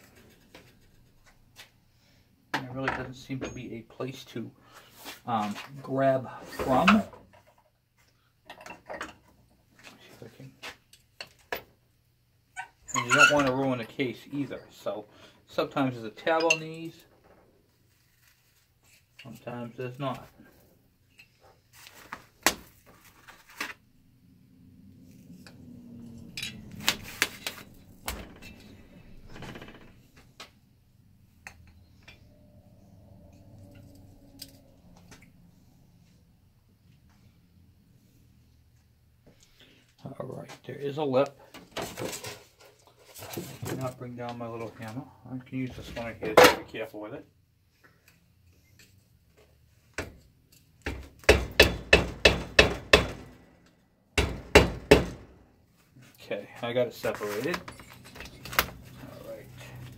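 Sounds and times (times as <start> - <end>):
metal clinks and knocks: 57.6 - 58.6.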